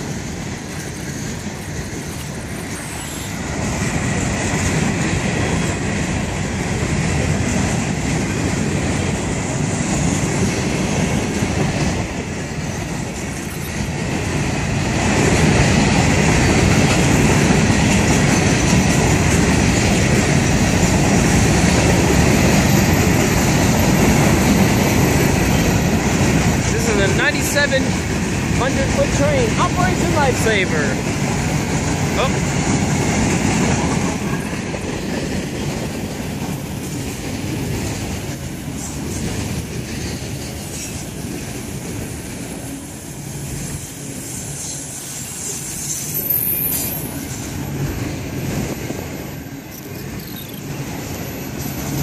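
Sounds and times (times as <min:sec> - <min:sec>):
train wheels rumbling on track: 0:00.0 - 0:52.0
high wheel squeal: 0:02.1 - 0:03.5, 0:44.7 - 0:47.4.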